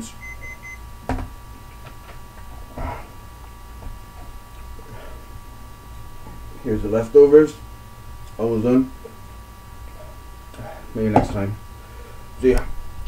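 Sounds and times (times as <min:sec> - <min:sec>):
electrical hum: 0:00.0 - 0:13.0
stopwatch alarm beeping: 0:00.2 - 0:00.8.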